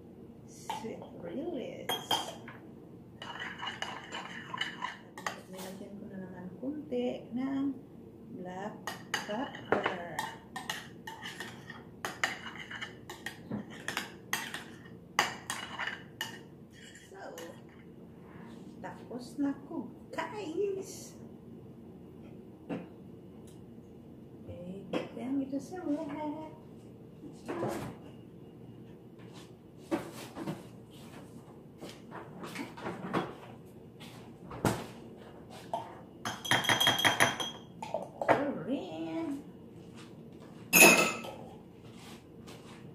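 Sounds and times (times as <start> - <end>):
metal utensil clinking and scraping bowl: 3.2 - 5.8, 8.9 - 17.7
spoon clinking against glass jar: 36.3 - 37.7.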